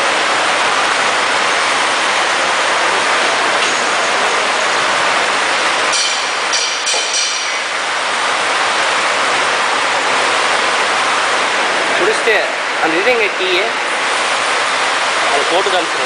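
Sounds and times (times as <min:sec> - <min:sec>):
metallic clatter with ringing: 0:05.9 - 0:07.8.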